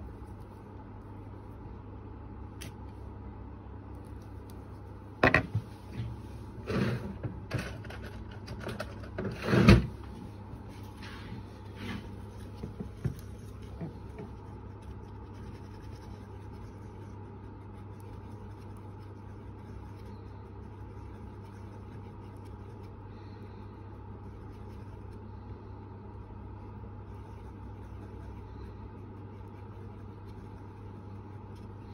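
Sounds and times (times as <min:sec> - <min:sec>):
steady low hum: 0:00.0 - 0:31.9
tools knocking on a workbench: 0:05.2 - 0:05.6.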